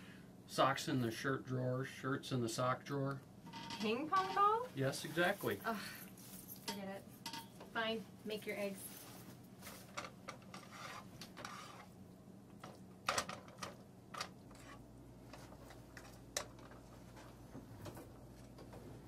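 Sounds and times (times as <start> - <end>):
utensil scraping cookware: 10.4 - 12.0.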